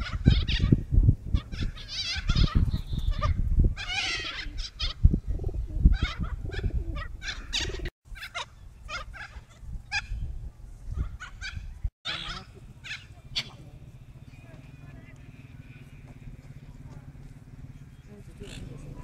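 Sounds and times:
parrots screeching and squawking: 0.0 - 0.8, 1.4 - 5.0, 5.9 - 10.2, 11.0 - 13.6.

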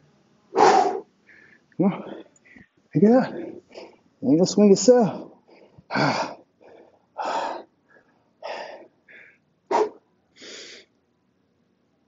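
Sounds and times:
man breathing hard: 0.8 - 4.1, 5.2 - 10.9.

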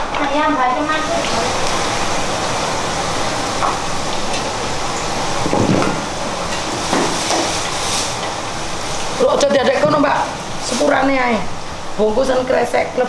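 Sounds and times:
steady frying hiss: 0.0 - 13.0.

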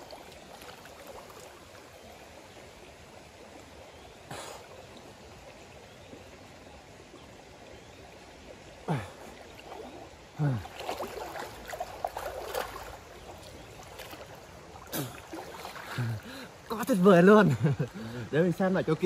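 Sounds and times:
stream water flowing: 0.0 - 19.0
water gurgling: 0.0 - 19.0
person wading and sloshing: 8.8 - 16.8.

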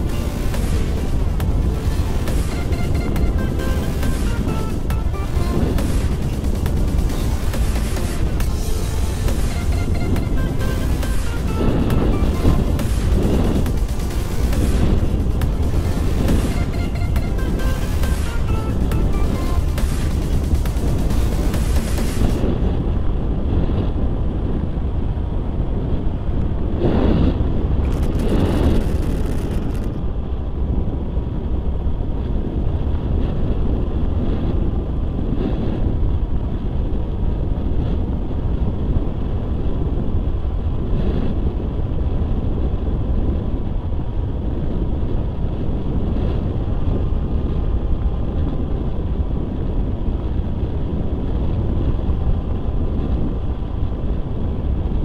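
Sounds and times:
wind rushing over microphone: 0.0 - 55.0.

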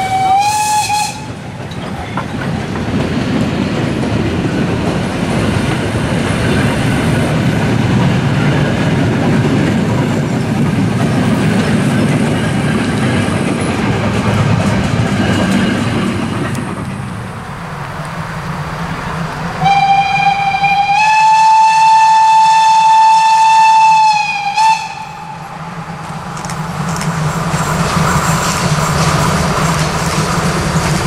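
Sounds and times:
steam locomotive whistle: 0.0 - 1.4, 19.6 - 25.6
approaching train running noise: 0.0 - 31.0
train wheels on rails: 0.0 - 31.0.

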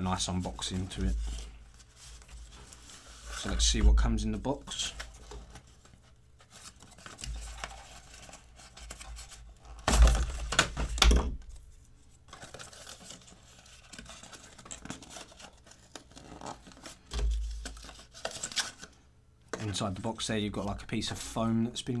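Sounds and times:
cardboard rustling: 4.4 - 19.8.

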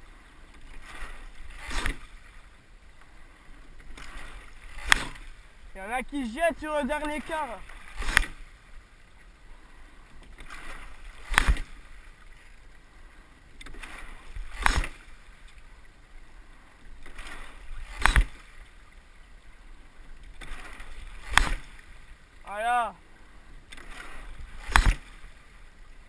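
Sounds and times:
rush of water: 0.0 - 26.0
oars clacking in oarlocks: 0.5 - 8.6, 10.1 - 12.6, 13.5 - 15.7, 17.0 - 18.8, 20.2 - 22.9, 23.5 - 25.6.

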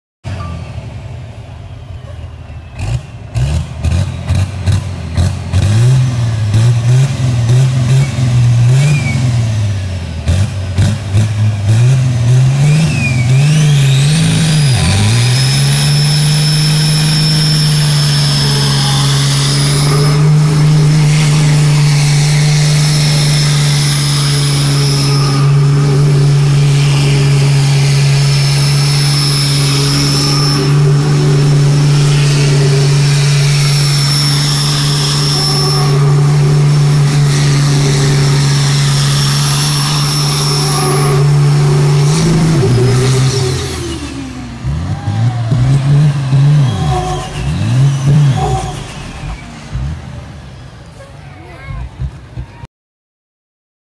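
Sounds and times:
diesel engine revving: 0.3 - 52.5
high whine: 12.4 - 50.9.

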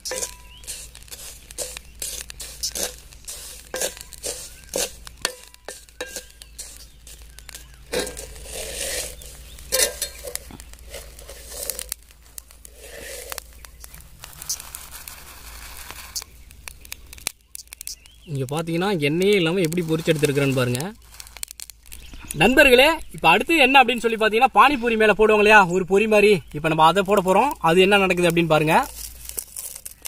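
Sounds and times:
strainer scraping through salt: 0.0 - 16.2, 19.6 - 21.5, 28.6 - 30.0
spatula stirring hot salt in pan: 0.0 - 16.4, 19.3 - 21.7, 27.2 - 30.0
salt pouring through mesh: 0.0 - 16.9, 19.3 - 22.0, 28.0 - 30.0.

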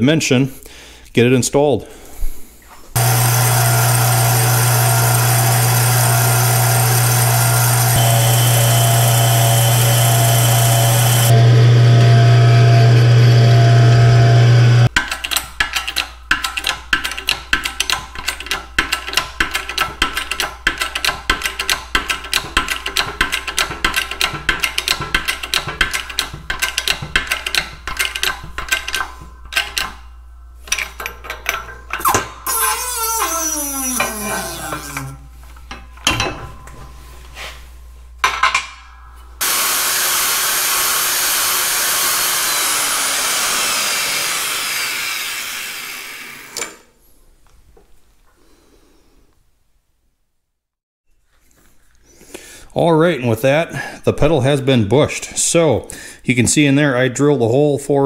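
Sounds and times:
metal lathe running: 3.0 - 14.9, 39.4 - 46.8
hydraulic press clicks and creaks: 30.6 - 36.3, 46.3 - 46.9.

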